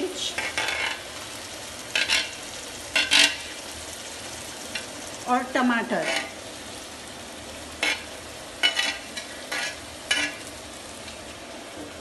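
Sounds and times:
vegetables sizzling in a pan: 0:00.0 - 0:12.0
metal spoon scraping a pan: 0:00.3 - 0:01.1, 0:01.9 - 0:03.6, 0:05.9 - 0:06.4, 0:07.8 - 0:10.5.

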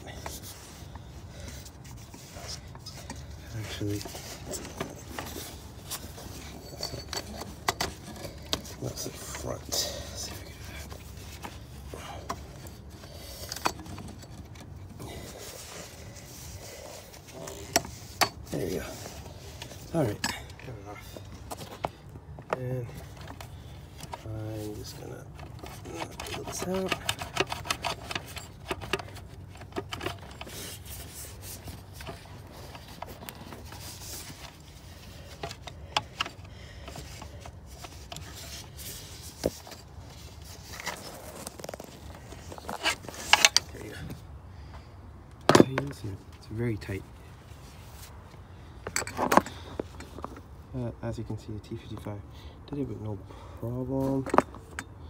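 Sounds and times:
belt rubbing and scraping on pulleys: 0:00.0 - 0:21.8, 0:22.9 - 0:44.1
hands and tools handling: 0:00.0 - 0:50.8, 0:52.6 - 0:55.0.

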